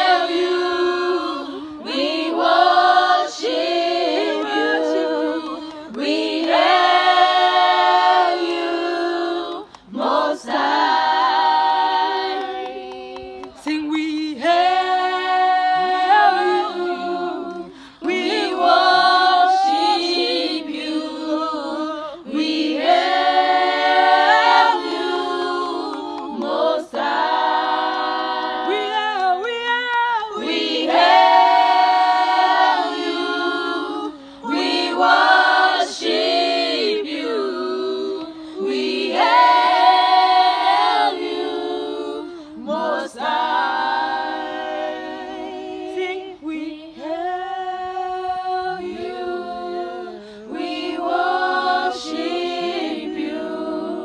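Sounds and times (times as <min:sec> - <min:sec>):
women singing a cappella: 0:00.0 - 0:54.0.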